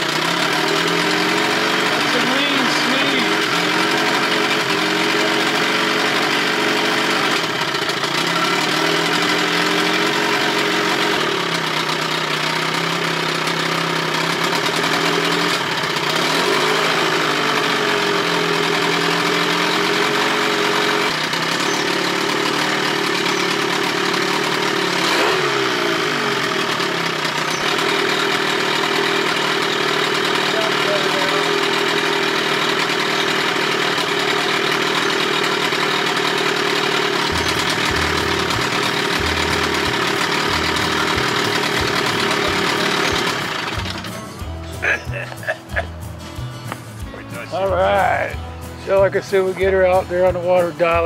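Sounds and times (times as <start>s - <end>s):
outboard motor running: 0.0s - 51.0s
engine sneezing: 44.7s - 45.7s.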